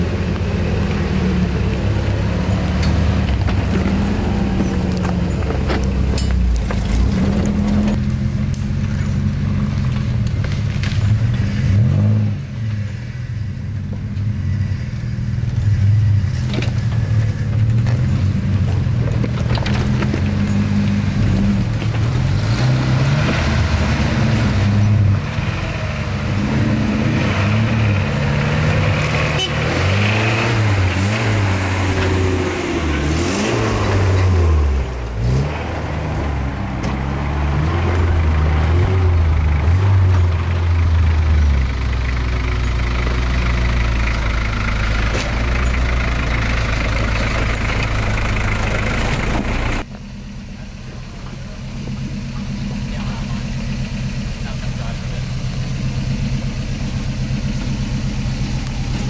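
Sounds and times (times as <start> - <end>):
truck engine revving: 0.0 - 13.2, 14.2 - 59.0.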